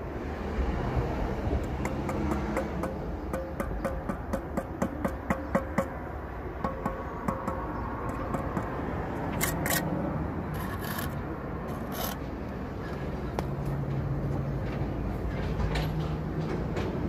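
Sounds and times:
trowel scraping brick and mortar: 9.3s - 9.9s, 10.5s - 12.3s.

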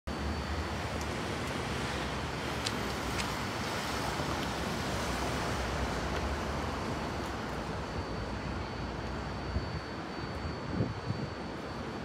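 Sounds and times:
elevated train rumbling: 0.1s - 12.0s.

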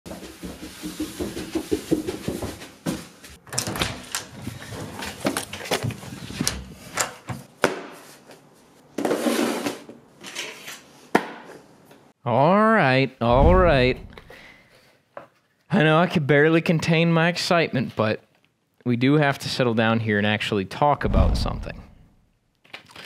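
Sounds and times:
footsteps: 0.1s - 3.4s
door: 13.3s - 14.3s
knocks and clicks: 13.3s - 14.3s.

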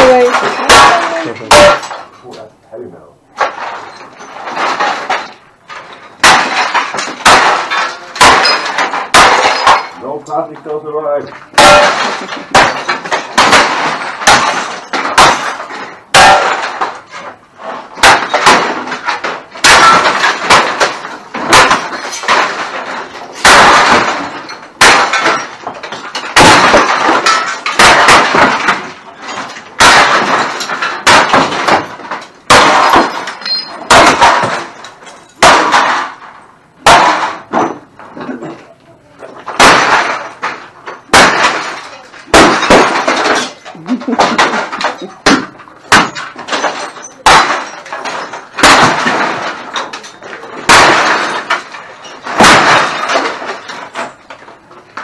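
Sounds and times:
metal bars smashing electronics: 0.0s - 2.2s, 3.4s - 38.2s, 39.4s - 55.0s
broken glass crashing: 0.0s - 2.4s, 3.3s - 38.7s, 39.3s - 55.0s.

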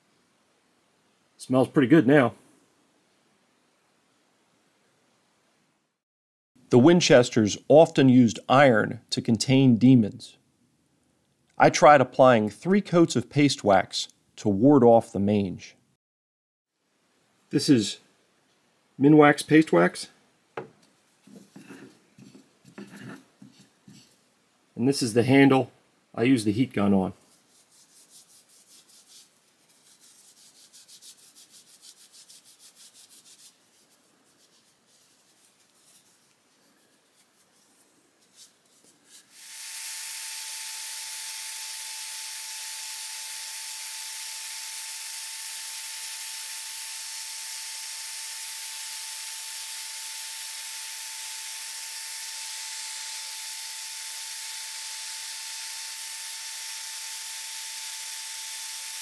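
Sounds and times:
cloth rubbing wax on handle: 27.3s - 39.3s
electric drill whining: 39.3s - 59.0s.

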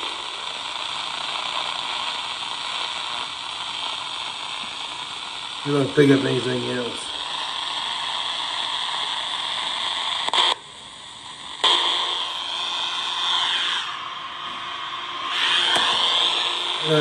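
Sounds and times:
radio static hiss: 0.0s - 17.0s
radio click: 7.1s - 10.6s, 11.6s - 12.5s, 15.6s - 16.8s.

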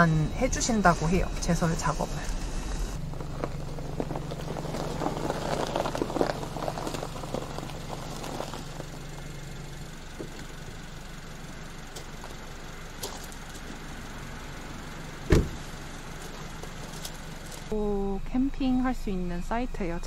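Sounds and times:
car engine hum: 0.0s - 20.0s
tyres crunching over snow and gravel: 0.4s - 17.8s.

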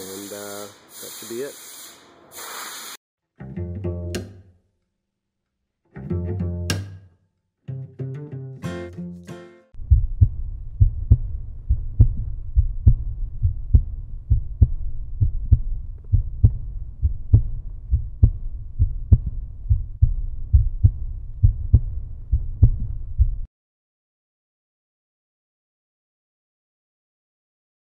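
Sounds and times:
deep heartbeat-like thumping: 9.8s - 23.5s.

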